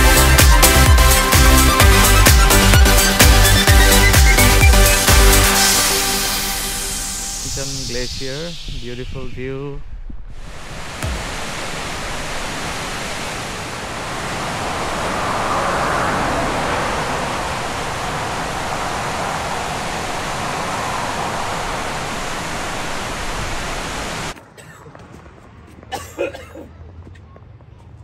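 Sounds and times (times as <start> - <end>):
rushing falling water: 10.4 - 24.4.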